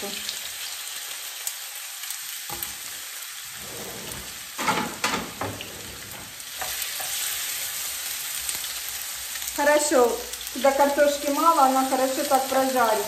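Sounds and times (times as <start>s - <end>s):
potatoes sizzling in oil: 0.0s - 3.6s, 4.2s - 13.0s
knocks and scrapes in pan: 3.6s - 7.1s.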